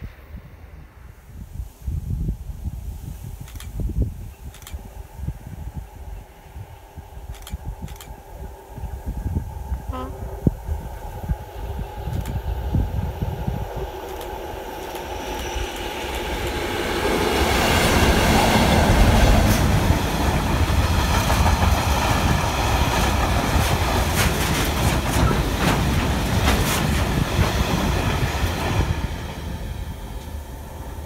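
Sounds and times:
freight train passing: 0:04.2 - 0:31.0
train wheels clicking over track: 0:14.0 - 0:30.8.

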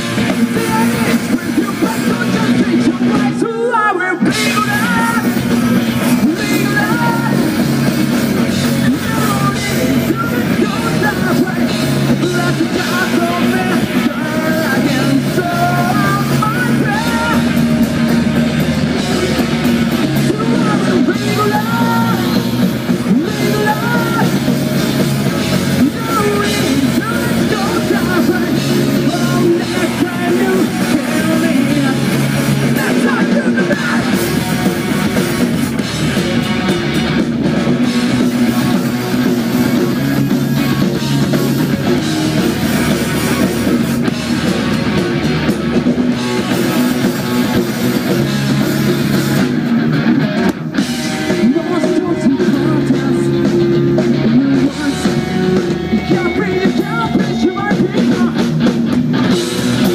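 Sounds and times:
person singing: 0:00.0 - 0:35.4, 0:51.0 - 0:58.5
distorted electric guitars: 0:00.0 - 0:59.9
drum kit: 0:00.0 - 0:59.9.

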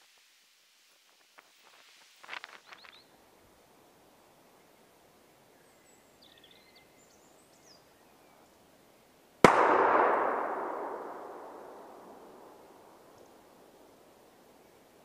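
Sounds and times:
shotgun shot with echo: 0:09.4 - 0:13.1.

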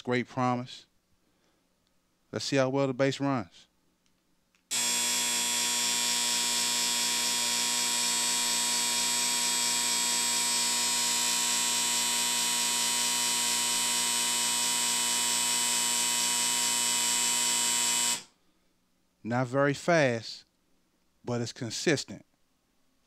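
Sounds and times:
vibrating game board buzzing: 0:04.7 - 0:18.3.

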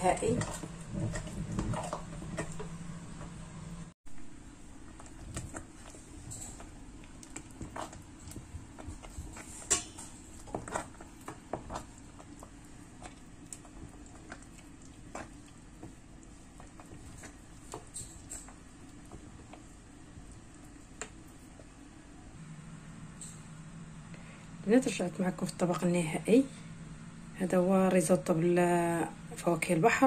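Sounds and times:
wooden spoon stirring risotto: 0:00.0 - 0:03.3, 0:04.2 - 0:22.2
low steady hum: 0:00.0 - 0:30.0.

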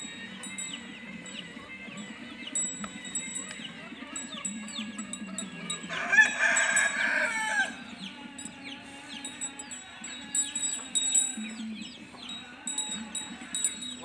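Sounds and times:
small birds chirping: 0:00.0 - 0:14.0
rooster crowing: 0:05.4 - 0:08.0.

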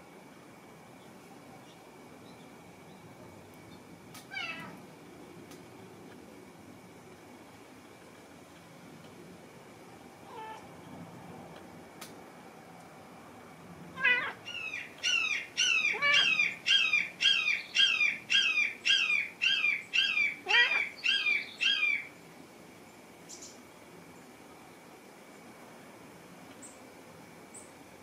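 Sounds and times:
cat meowing: 0:04.3 - 0:04.8, 0:10.2 - 0:10.7, 0:14.0 - 0:14.4, 0:15.8 - 0:16.5, 0:20.4 - 0:21.0.

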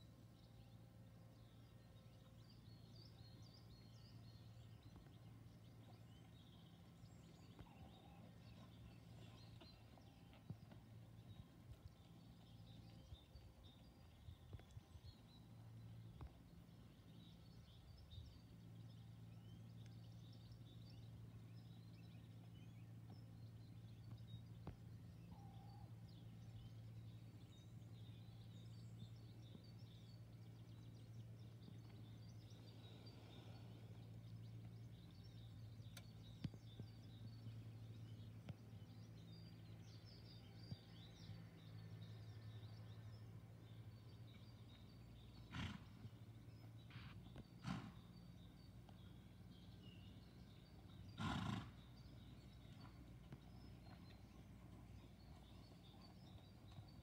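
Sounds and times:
low steady hum: 0:00.0 - 0:57.0
small birds chirping: 0:00.0 - 0:57.0.

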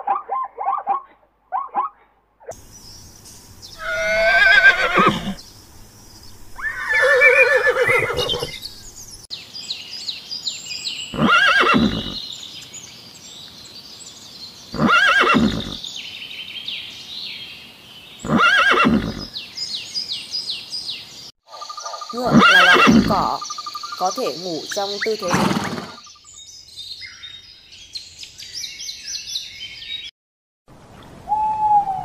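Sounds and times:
faint high chirping: 0:02.6 - 0:13.8
zebras calling: 0:03.8 - 0:05.4, 0:06.6 - 0:08.7, 0:11.1 - 0:12.2, 0:21.6 - 0:26.0.

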